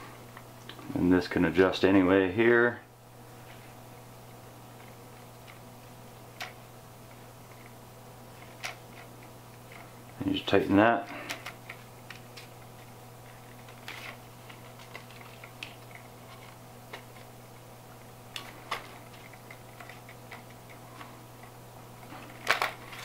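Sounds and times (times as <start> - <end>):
plastic parts clicking: 11.3 - 12.5, 22.2 - 23.0.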